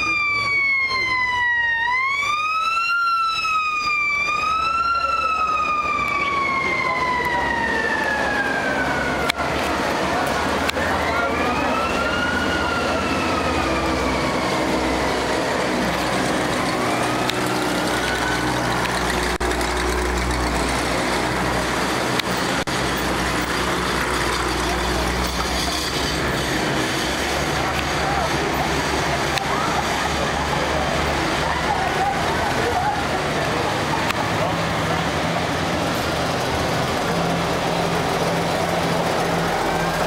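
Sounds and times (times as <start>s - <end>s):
siren wailing: 0.0s - 10.1s, 10.7s - 19.8s, 38.8s - 40.0s
military vehicle engines rumbling: 0.0s - 40.0s.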